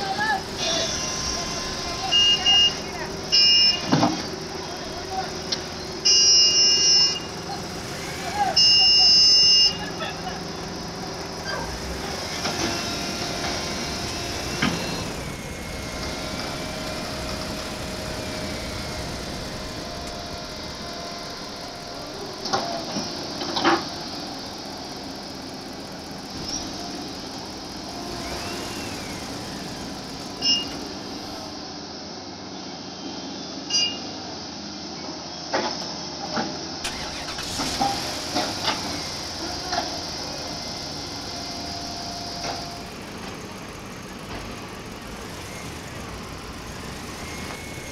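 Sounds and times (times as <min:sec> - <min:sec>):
engine rumble: 0:00.0 - 0:32.0, 0:36.2 - 0:47.9
short beep: 0:01.9 - 0:03.9, 0:33.7 - 0:34.1.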